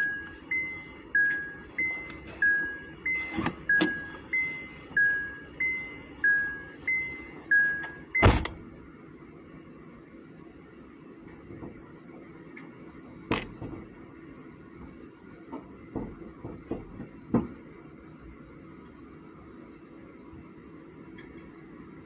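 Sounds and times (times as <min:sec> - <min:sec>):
car warning chime: 0:00.0 - 0:08.5
car door shutting: 0:03.1 - 0:04.2, 0:07.8 - 0:08.6.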